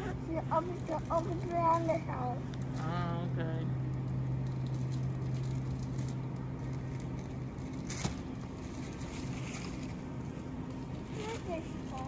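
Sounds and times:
steady low hum: 0.0 - 12.0
shopping cart rattling and rolling: 4.5 - 10.0.

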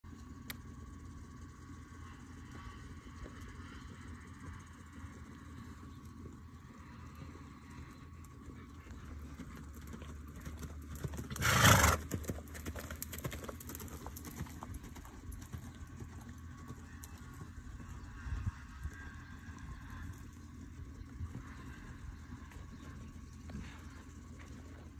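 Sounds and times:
hoofbeats on soft dirt: 0.2 - 24.9
horse snorting: 11.3 - 12.1.

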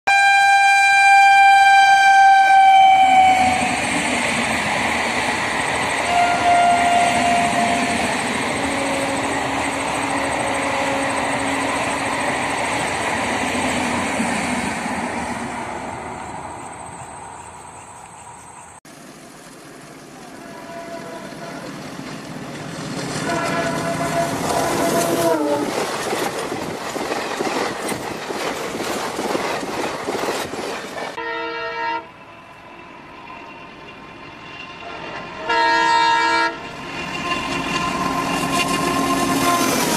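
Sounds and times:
train horn blast: 0.1 - 3.9, 6.0 - 12.0, 20.2 - 21.8, 23.2 - 25.7, 31.2 - 32.5, 34.8 - 39.9
distant approaching train: 0.1 - 39.9
train wheels clattering over rails: 21.2 - 31.2.

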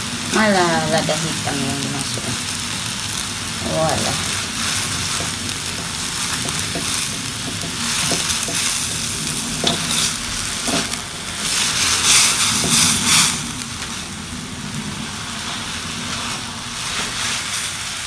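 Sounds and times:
noodles sizzling in a wok: 0.0 - 18.0
spatula scraping a pan: 4.6 - 13.5.

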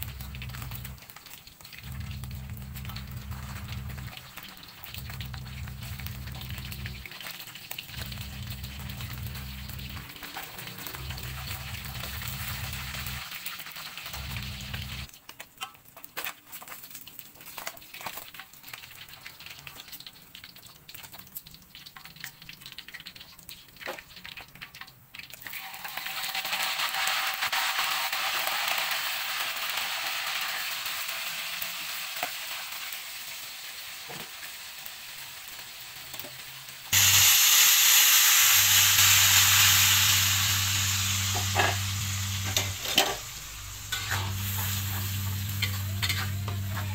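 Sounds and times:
fish sizzling in hot oil: 0.0 - 46.9
loud sizzle of paste in oil: 0.0 - 46.9.

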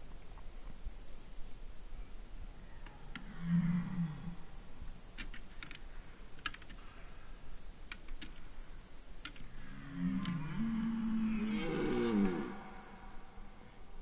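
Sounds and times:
deer low call: 9.6 - 14.0
faint sharp ticks: 11.8 - 12.5.

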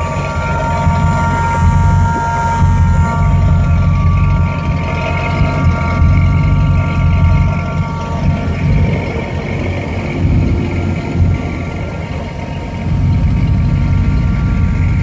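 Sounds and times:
faint steady whine: 0.0 - 15.0
vehicle engine idling: 0.0 - 15.0.

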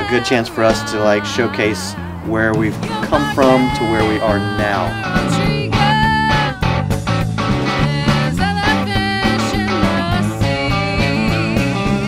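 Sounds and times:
electric bass: 0.0 - 12.0
electric guitar: 0.0 - 12.0
drum kit with cymbals: 2.4 - 12.0
female vocal with vibrato: 7.8 - 11.6.

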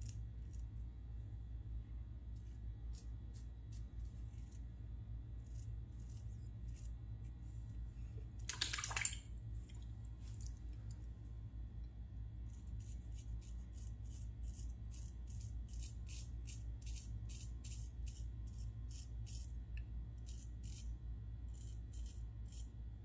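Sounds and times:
razor scraping stubble: 5.3 - 7.0, 12.5 - 19.6, 20.2 - 22.8.

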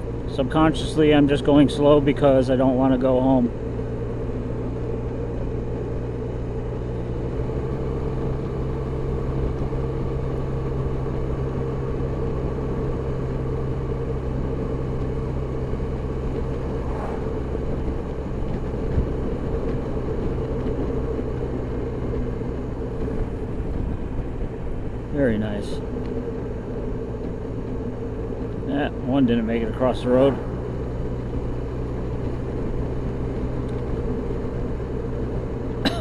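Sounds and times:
scooter engine cruising: 0.0 - 36.0
wind and road noise: 0.0 - 36.0.

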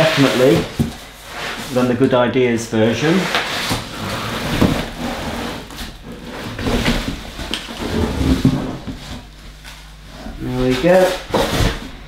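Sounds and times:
cardboard box scraping and rustling: 3.3 - 9.3.

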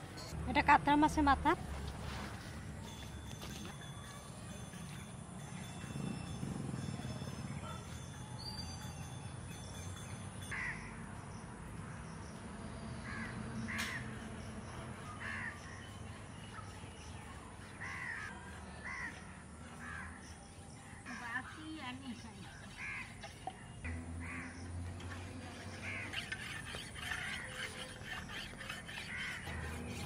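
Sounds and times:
crows cawing: 22.8 - 23.1, 28.7 - 29.8.

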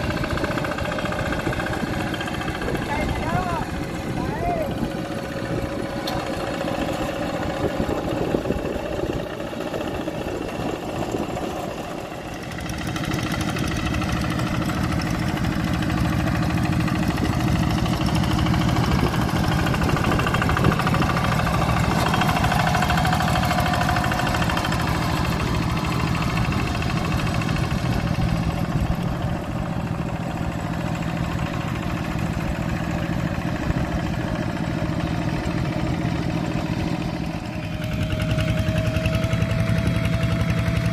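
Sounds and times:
diesel engines chugging: 0.0 - 40.9.

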